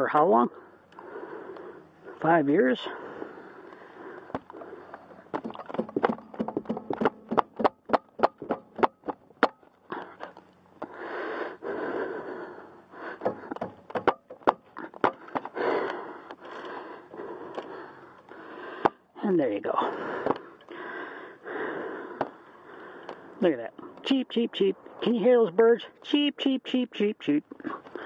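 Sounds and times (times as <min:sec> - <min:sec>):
tool scraping and rustling: 0:04.3 - 0:10.5.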